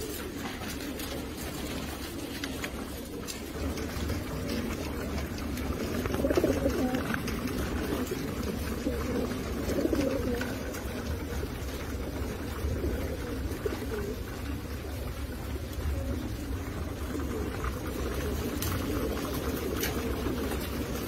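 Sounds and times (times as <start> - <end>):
pigeons cooing: 0.0 - 21.0.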